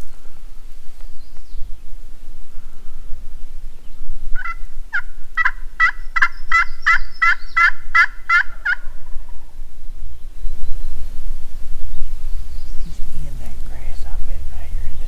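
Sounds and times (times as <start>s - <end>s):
turkey call notes: 4.3s - 9.5s.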